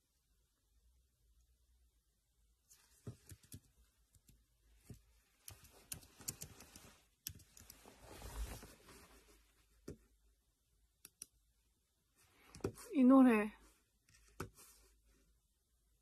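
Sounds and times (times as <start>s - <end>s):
handling rustle: 5.3s - 9.5s.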